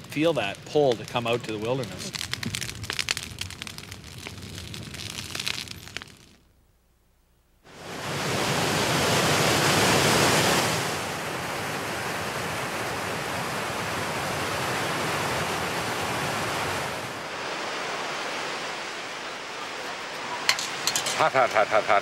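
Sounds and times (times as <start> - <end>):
river rapids rushing: 7.7 - 22.0.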